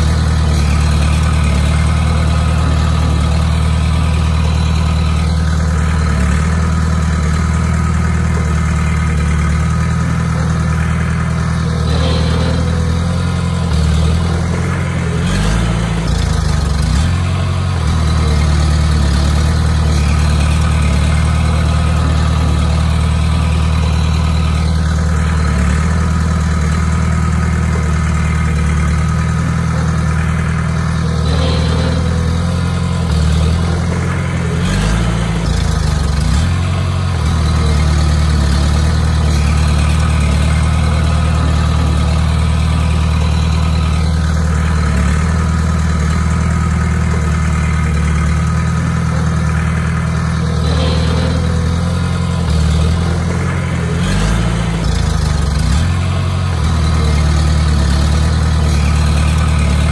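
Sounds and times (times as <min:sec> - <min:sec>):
bulldozer diesel engine running: 0:00.0 - 0:59.9.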